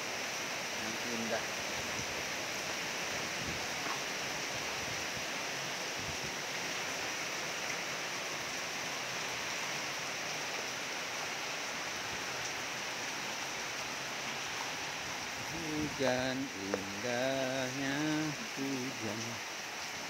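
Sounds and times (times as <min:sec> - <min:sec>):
heavy rain: 0:00.0 - 0:20.0.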